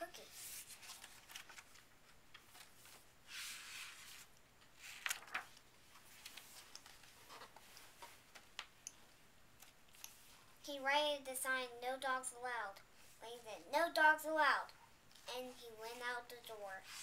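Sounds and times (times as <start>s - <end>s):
book pages rustling: 0.2s - 8.7s.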